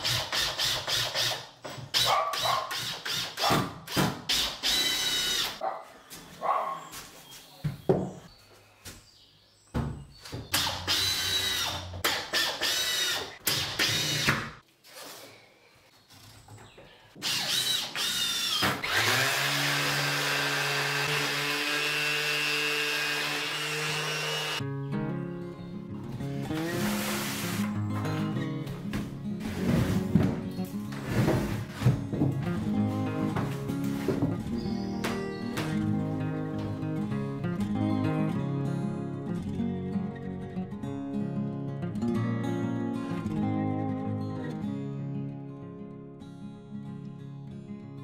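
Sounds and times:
cordless drill whirring: 4.4 - 5.6, 10.6 - 14.4, 17.2 - 24.6
orbital sander on wood: 18.9 - 24.6.

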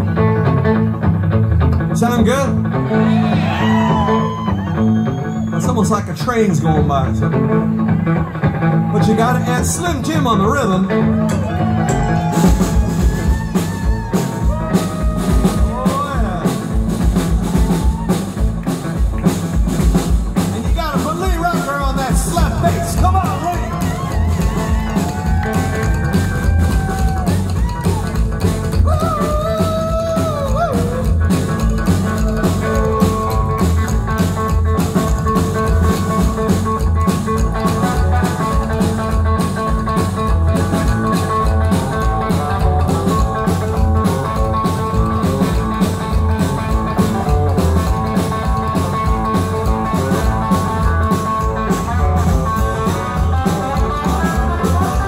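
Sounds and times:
electric guitar riff: 0.0 - 55.0
upright bass: 0.0 - 55.0
drum kit beat: 11.3 - 55.0.

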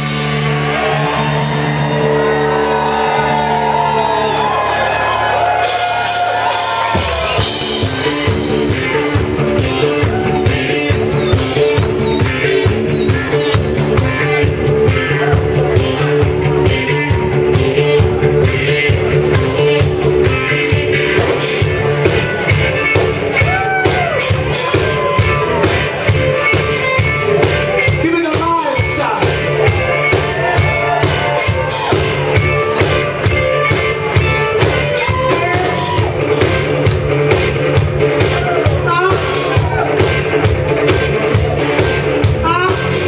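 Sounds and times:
drums keeping a beat: 0.0 - 43.0
electric guitars and bass: 0.0 - 43.0
person singing: 42.4 - 43.0.

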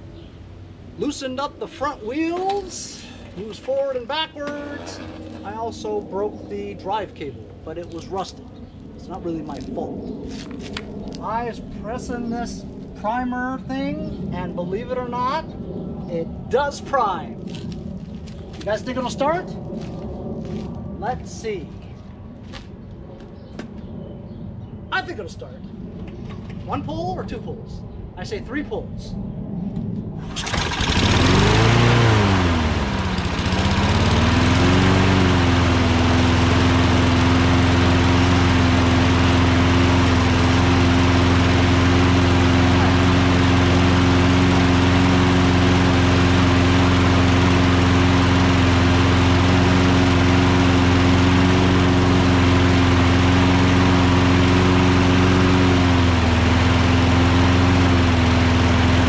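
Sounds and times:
lawn mower engine running: 1.7 - 5.8, 30.2 - 59.0.

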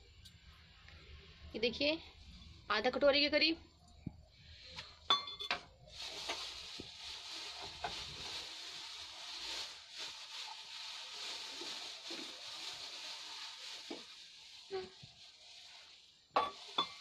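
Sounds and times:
food sizzling in a pan: 5.1 - 17.0.

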